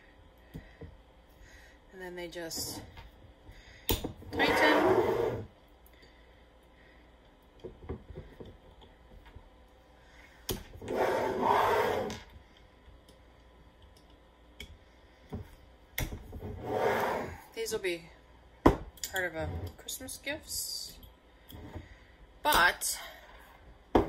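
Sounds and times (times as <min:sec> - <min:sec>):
rubbing scraping noise: 0:04.4 - 0:05.5, 0:10.8 - 0:12.2, 0:16.6 - 0:17.4.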